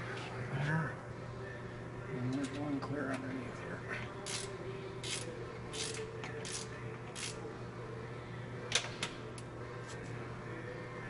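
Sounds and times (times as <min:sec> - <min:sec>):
steady low hum: 0:00.0 - 0:11.0
hand ratchet clicking: 0:04.2 - 0:07.4.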